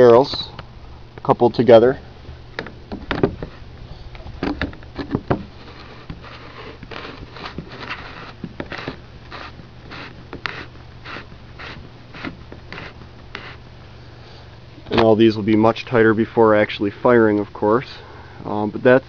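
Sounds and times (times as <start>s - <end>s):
plastic coupling scraping: 2.6s - 13.6s.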